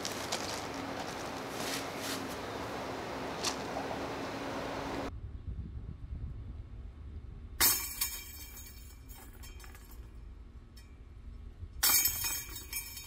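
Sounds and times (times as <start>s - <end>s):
disc clashing into chains: 7.6s - 10.2s, 11.8s - 13.0s.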